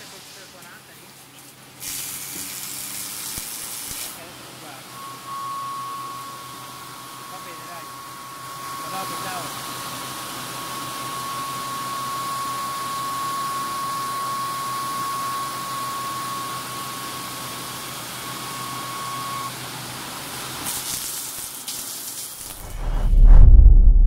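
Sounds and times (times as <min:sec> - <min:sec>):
coolant spraying with wet hiss: 0:00.0 - 0:04.8, 0:19.7 - 0:22.6
thin high whine: 0:04.2 - 0:19.6, 0:22.5 - 0:24.0.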